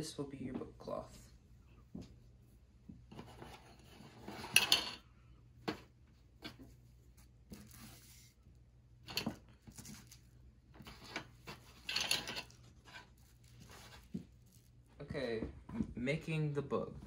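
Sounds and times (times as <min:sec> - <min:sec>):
cloth rustling: 0:09.6 - 0:15.0.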